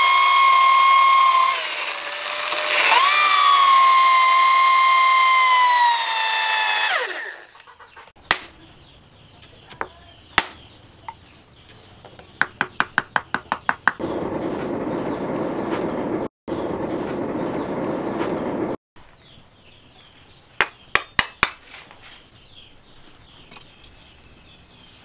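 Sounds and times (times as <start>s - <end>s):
electric drill whining: 0.0s - 7.7s
sharp taps: 12.1s - 14.0s.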